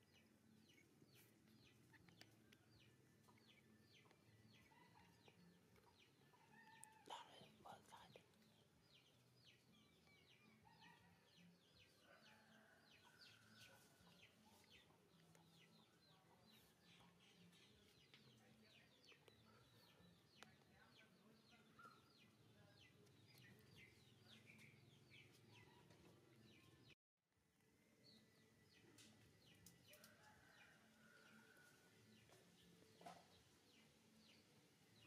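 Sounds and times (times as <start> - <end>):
small birds chirping: 0.0 - 27.0.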